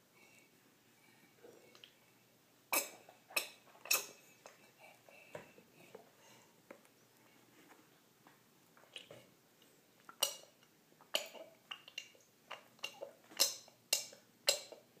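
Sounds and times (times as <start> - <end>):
toddler gulping and slurping: 2.7 - 4.7, 10.1 - 14.9.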